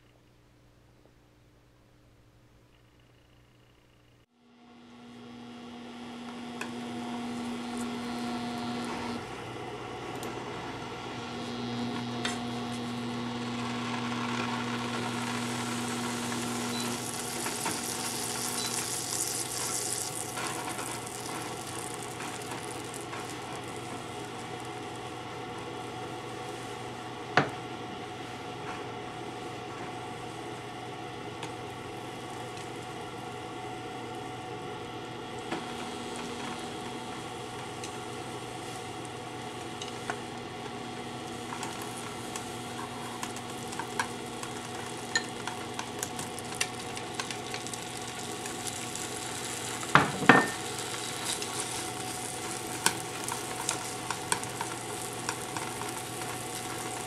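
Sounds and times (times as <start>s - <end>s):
butter sizzling in a frying pan: 13.2s - 27.3s, 35.3s - 57.0s
bacon crackling and spitting: 15.4s - 24.9s, 41.4s - 50.0s, 50.6s - 57.0s
bacon landing in pan: 49.9s - 50.7s.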